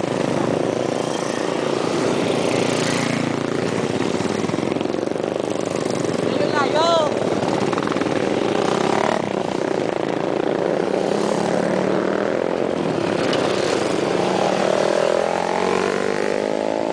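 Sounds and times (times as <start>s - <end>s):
motorcycles riding past: 0.0s - 16.9s
wind and road noise: 0.0s - 16.9s.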